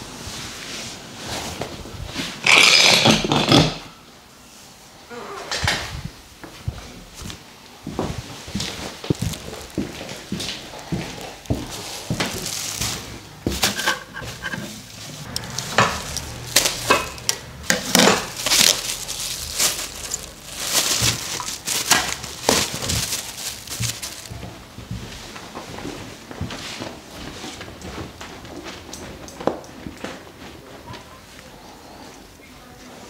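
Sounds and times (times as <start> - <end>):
plastic bag crinkling: 8.6 - 24.6.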